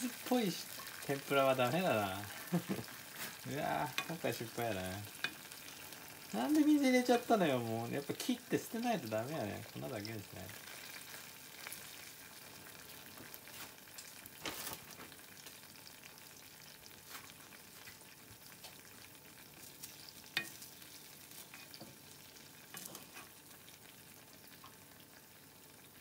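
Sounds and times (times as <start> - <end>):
tempura sizzling in oil: 0.0 - 26.0
chopsticks clicking against pan: 3.9 - 4.2.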